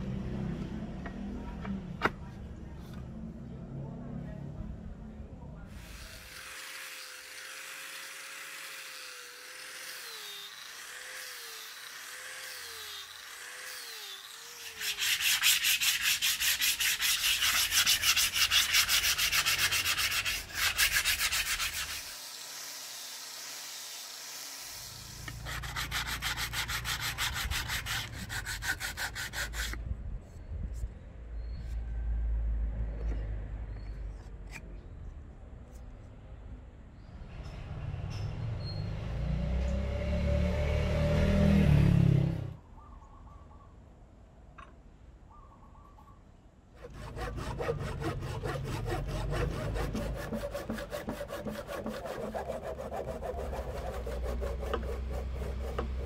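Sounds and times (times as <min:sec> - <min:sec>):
sanding wood with rubbing strokes: 0:05.7 - 0:29.8, 0:46.8 - 0:56.0.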